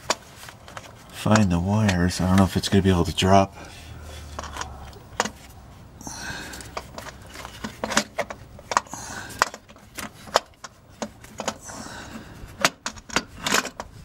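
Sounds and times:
rustling: 0.0 - 1.4.

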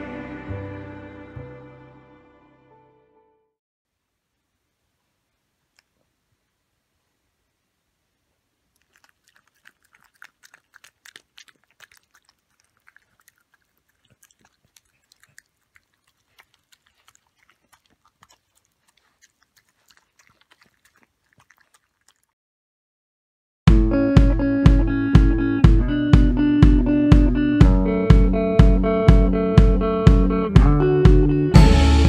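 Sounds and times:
dog licking and chewing: 8.6 - 22.4.

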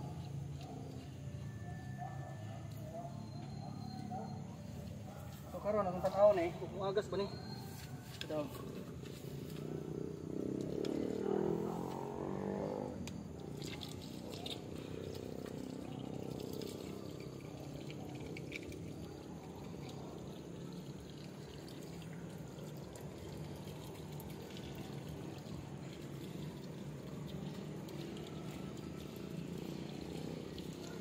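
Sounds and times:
water trickling from pipe: 12.8 - 31.0.

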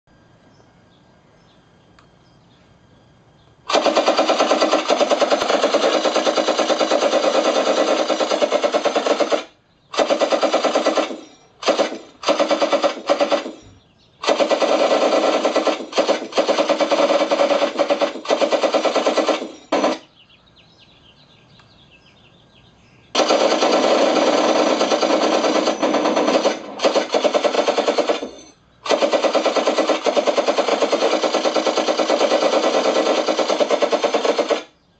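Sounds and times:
machine-gun sound effect on loudspeaker: 3.7 - 13.6, 14.2 - 20.1, 23.2 - 34.7.

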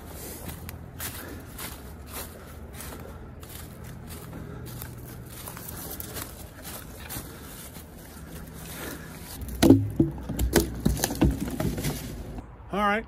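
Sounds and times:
footsteps crunching dry leaves: 0.0 - 9.6, 11.0 - 12.4
loud knocks and thumps: 9.4 - 12.4.

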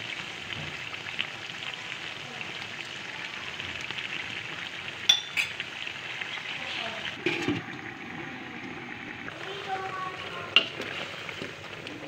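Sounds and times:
food sizzling in a wok: 0.0 - 12.0.

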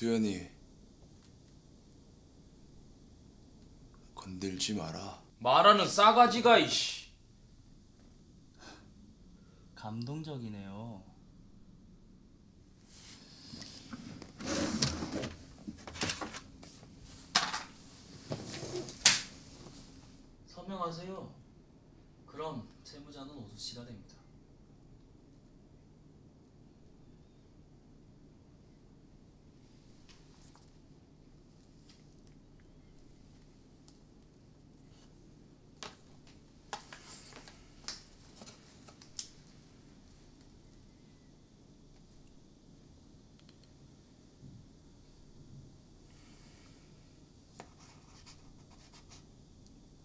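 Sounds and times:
objects rustling on a desk: 12.9 - 20.2, 35.8 - 39.6
pen scratching on paper: 47.6 - 49.2.

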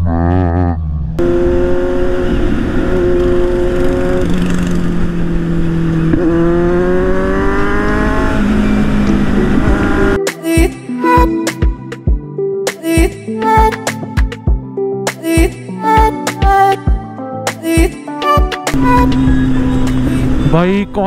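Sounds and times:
motorcycle engine: 0.0 - 10.2, 18.7 - 21.0
road noise: 0.0 - 10.2, 18.7 - 21.0.

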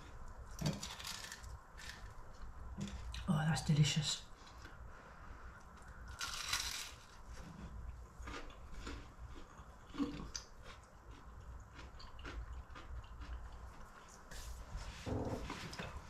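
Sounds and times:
chewing close to microphone: 5.6 - 14.2
person biting with a crunch: 6.1 - 7.2.

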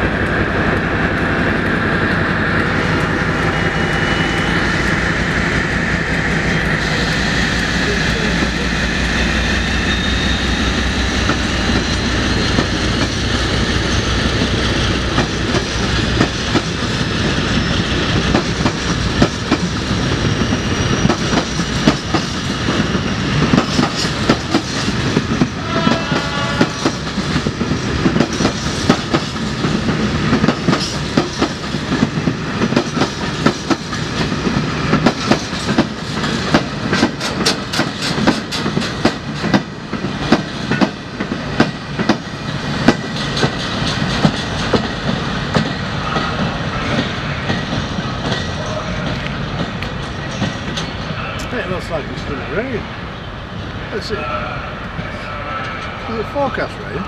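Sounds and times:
diesel locomotive engine throbbing: 0.0 - 57.0
wheel squeal: 9.2 - 11.0, 20.0 - 21.6
wagons clickety-clack over rails: 11.2 - 52.8.

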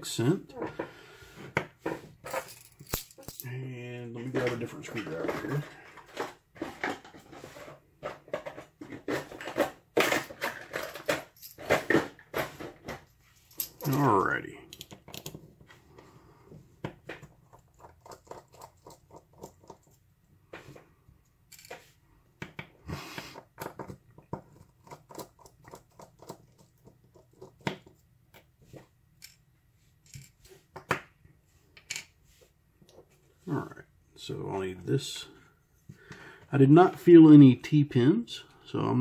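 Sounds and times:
metal parts tapping: 2.2 - 3.5, 9.2 - 12.3, 13.5 - 15.4.

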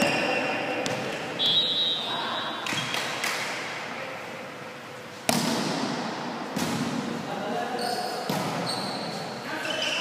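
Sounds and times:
volleyball being hit: 5.2 - 7.2.

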